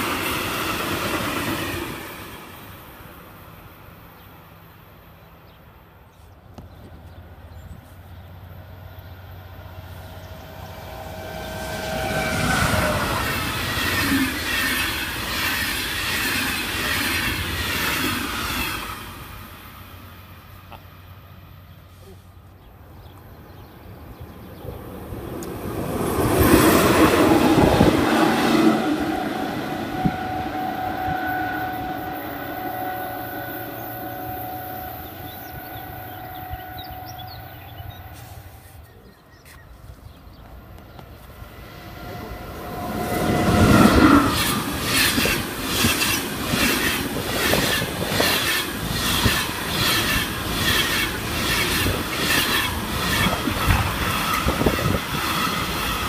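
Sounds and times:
rail noise with steady whine: 0.0s - 56.0s
train wheels clickety-clack: 43.3s - 56.0s.

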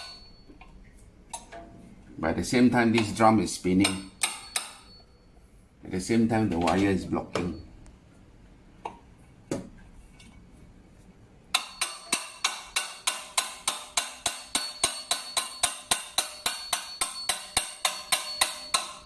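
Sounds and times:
hammer tapping metal wrench: 2.9s - 3.2s, 3.8s - 5.1s, 11.5s - 19.0s.

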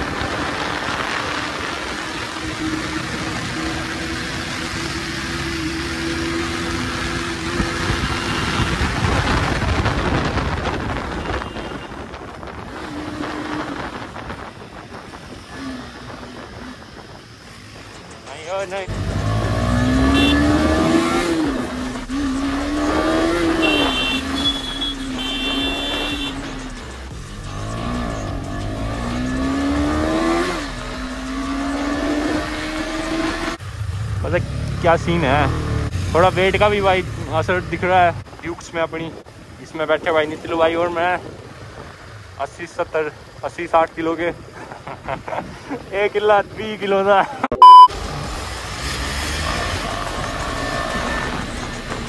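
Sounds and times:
wind and road noise: 0.0s - 52.0s
wind rush: 7.6s - 18.0s
motorcycle engine accelerating: 18.8s - 36.4s
high horn beeps: 19.8s - 21.6s, 22.2s - 26.8s, 47.6s - 47.9s.

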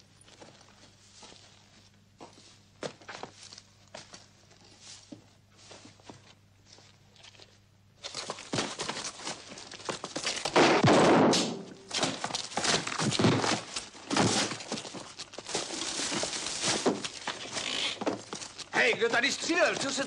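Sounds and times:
fight thuds and knocks: 10.5s - 14.8s.

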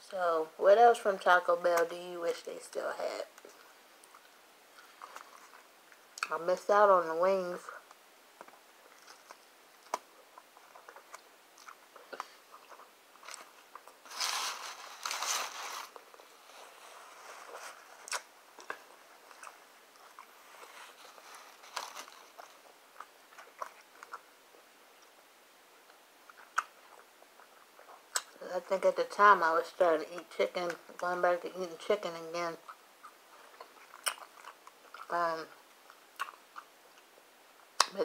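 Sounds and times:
person chewing tortilla wrap: 7.8s - 28.4s, 32.6s - 37.9s
paper rustling: 13.3s - 17.9s, 20.5s - 22.6s.

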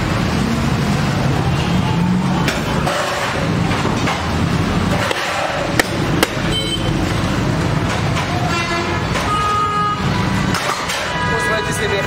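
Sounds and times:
street traffic rumbling: 0.0s - 12.0s
vehicle horns honking: 6.4s - 7.1s, 8.4s - 12.0s.

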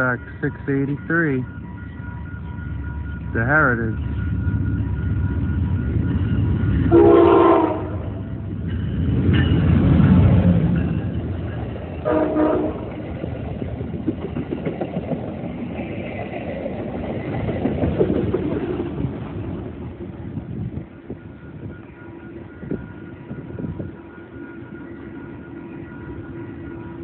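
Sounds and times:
locomotive rumbling past: 0.0s - 27.0s
train wheels clattering on rails: 4.0s - 21.7s
train horn blasts: 6.8s - 8.4s, 12.0s - 12.9s.

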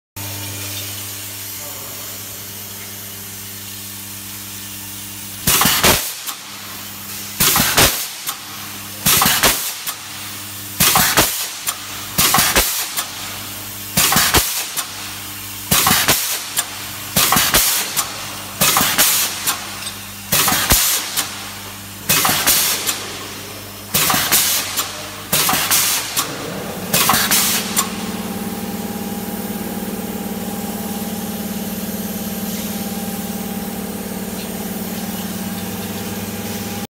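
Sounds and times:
steady machine hum: 0.2s - 36.9s
hissing clank of press strokes: 5.4s - 6.5s, 9.0s - 10.1s, 10.8s - 13.2s, 13.9s - 15.0s, 15.7s - 28.2s
higher machine hum: 21.3s - 36.9s.

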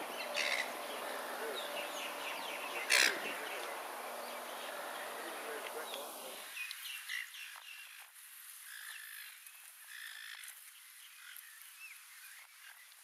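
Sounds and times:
short chirping animal calls: 0.0s - 6.4s
steady high hiss: 0.0s - 7.0s.

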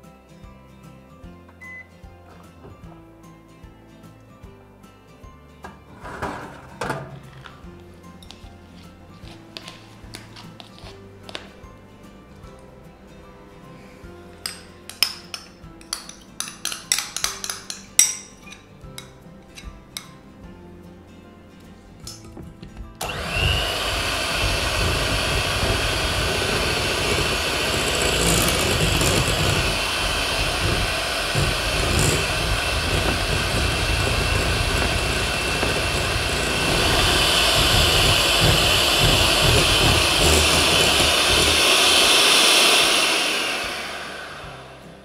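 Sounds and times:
electric hand mixer whipping cream: 23.0s - 45.0s.

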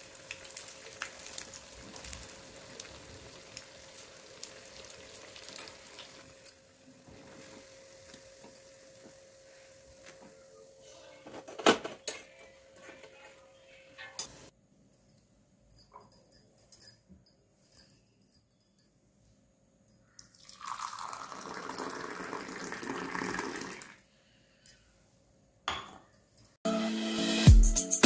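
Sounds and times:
fritters sizzling in hot oil: 0.0s - 10.1s.

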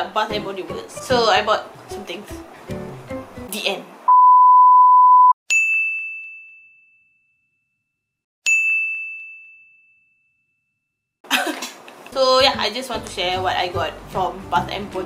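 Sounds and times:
test-tone beep: 4.1s - 5.4s
bell dings: 5.5s - 7.5s, 8.5s - 10.6s.

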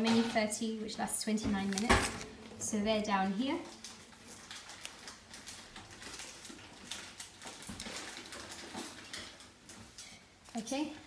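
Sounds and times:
paper booklet pages rustling: 1.6s - 2.3s.

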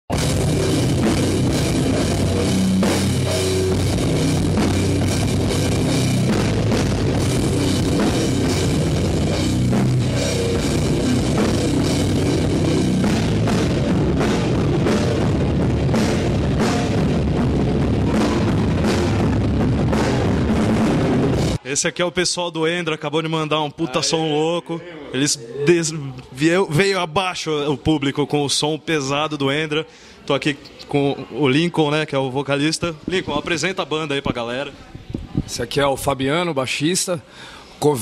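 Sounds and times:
heavy rock band playing live: 0.1s - 21.6s.

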